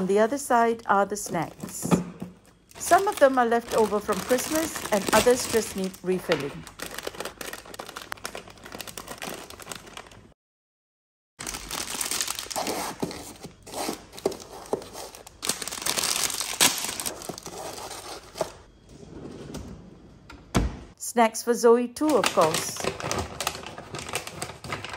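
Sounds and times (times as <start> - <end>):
plastic packets crinkling: 2.6 - 10.3, 11.4 - 18.7, 22.0 - 24.9.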